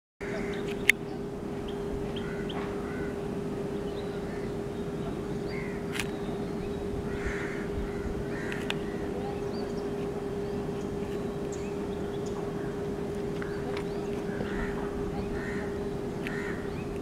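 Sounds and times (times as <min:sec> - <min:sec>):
birds cawing: 0:00.2 - 0:17.0
birds chirping: 0:00.2 - 0:17.0
steady low hum: 0:00.2 - 0:17.0
sharp clicks: 0:05.9 - 0:06.2.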